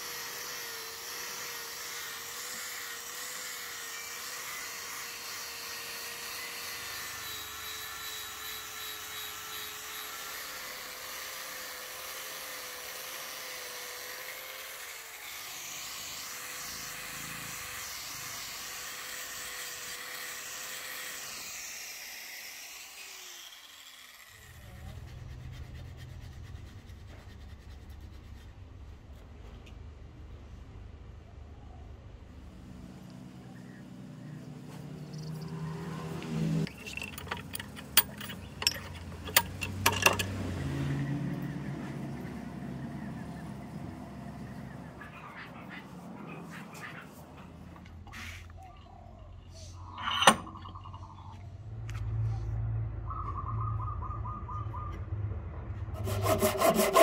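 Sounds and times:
angle grinder grinding metal: 0.0s - 25.8s, 34.0s - 48.6s, 49.7s - 51.4s, 56.0s - 57.0s.

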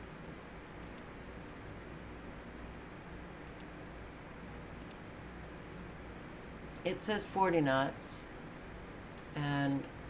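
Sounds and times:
computer mouse clicks: 0.8s - 1.1s, 3.4s - 3.8s, 4.8s - 5.0s.

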